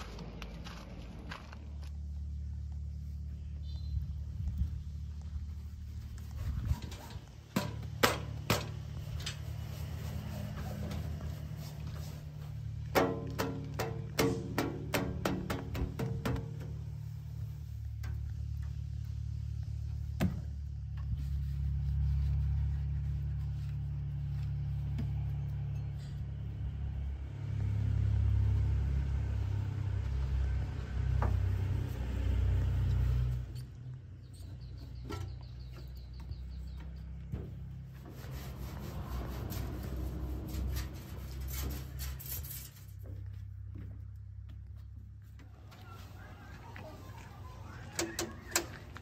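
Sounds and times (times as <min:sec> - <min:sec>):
diesel engine idling: 0:43.5 - 0:49.0.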